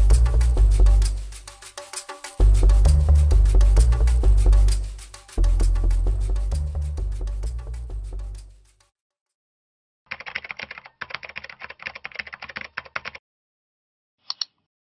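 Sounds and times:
keyboard typing: 10.1 - 13.2
mouse click: 14.2 - 14.7.

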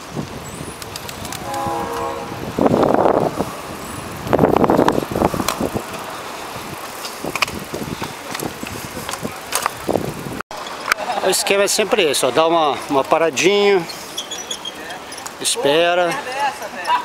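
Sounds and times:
wind buffeting microphone: 0.0 - 10.4
bike clicks and rattles: 0.2 - 1.6, 3.6 - 11.8, 12.7 - 17.0
steady pitched tone: 1.4 - 4.8.

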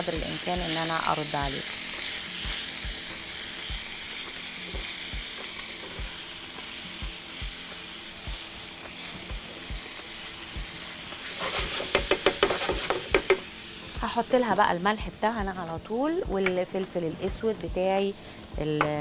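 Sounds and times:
meat and onion sizzling in a pan: 0.0 - 18.9
spatula knocking in pan: 11.8 - 13.5.

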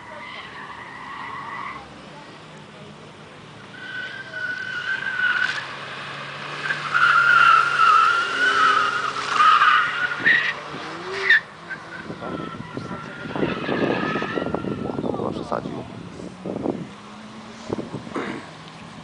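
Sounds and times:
tyres squealing: 3.7 - 5.8, 6.5 - 15.2.

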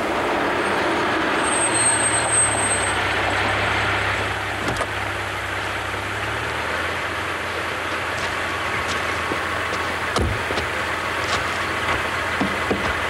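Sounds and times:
car engine drone: 0.0 - 13.0
thin high squeal: 0.6 - 3.2
tyre noise: 7.8 - 13.0.

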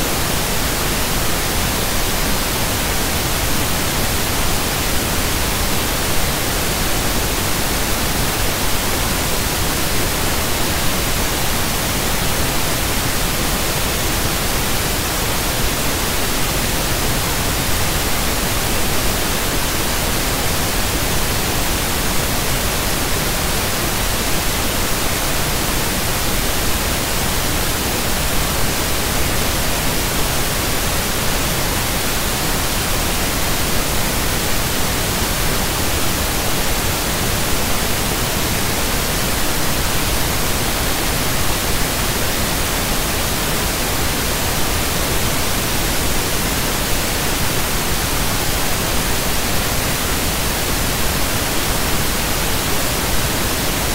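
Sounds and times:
loud static hiss: 0.0 - 53.9.

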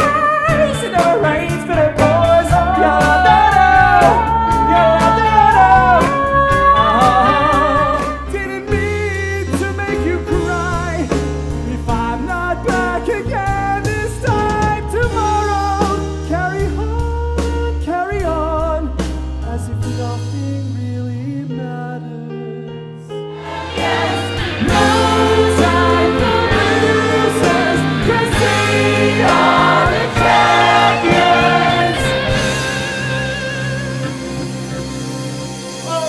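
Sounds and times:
band with bass notes: 0.0 - 21.7, 22.7 - 36.0
man singing: 0.0 - 22.8
ensemble choir singing: 23.3 - 34.4.

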